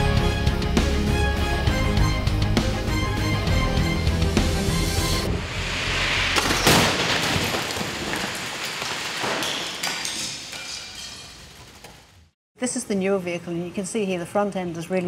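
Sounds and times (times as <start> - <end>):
rushing noise: 4.6 - 8.9
car crash crumpling metal: 6.1 - 11.4
debris clattering and tinkling: 6.4 - 11.9.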